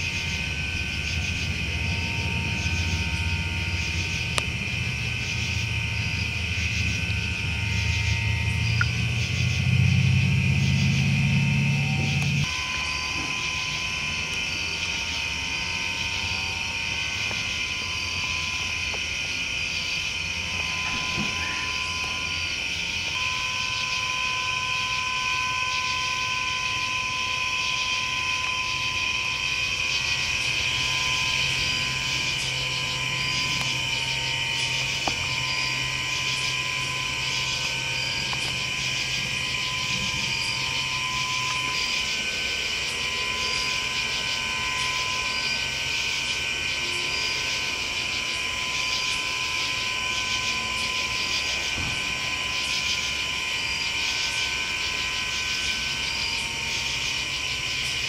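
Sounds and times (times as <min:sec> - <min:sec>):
drone of hiss and tones: 0:00.0 - 0:58.0
low hum: 0:00.0 - 0:58.0
faint high ticks: 0:08.8 - 0:09.0.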